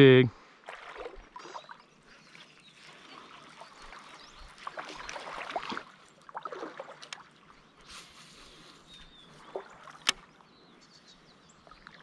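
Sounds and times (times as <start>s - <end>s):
river water splashing around legs: 0.6s - 10.4s.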